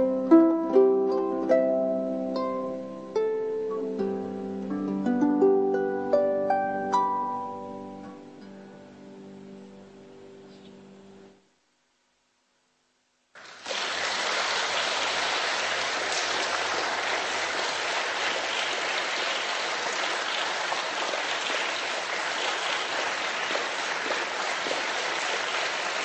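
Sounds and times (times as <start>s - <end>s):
audience applause: 13.4s - 26.0s.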